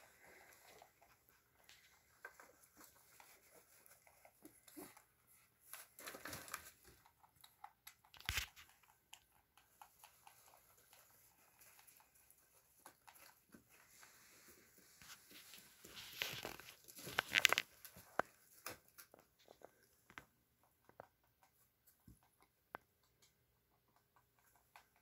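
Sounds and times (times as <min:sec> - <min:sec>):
rabbits rustling in bedding: 0:00.0 - 0:07.1, 0:09.9 - 0:19.9.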